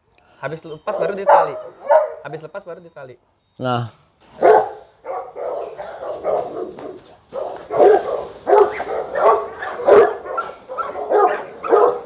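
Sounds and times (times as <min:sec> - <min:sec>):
dogs barking: 0:00.8 - 0:02.3, 0:04.3 - 0:12.0.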